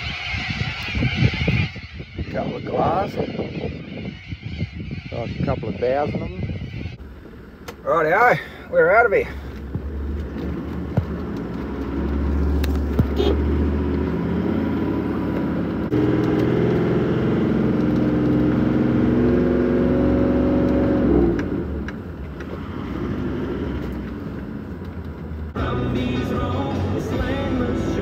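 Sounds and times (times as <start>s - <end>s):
car engine driving on sand: 7.0s - 28.0s.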